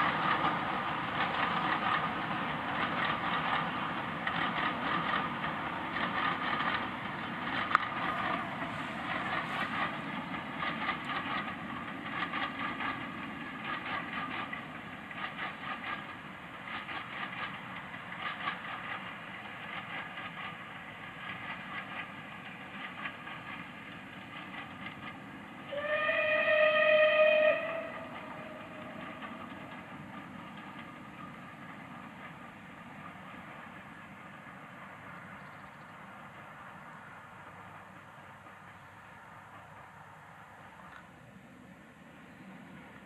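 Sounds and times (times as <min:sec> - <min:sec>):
steam locomotive exhaust beats: 0:00.0 - 0:43.0
wheels clattering on rail: 0:00.0 - 0:43.0
steam whistle blast: 0:25.7 - 0:28.6.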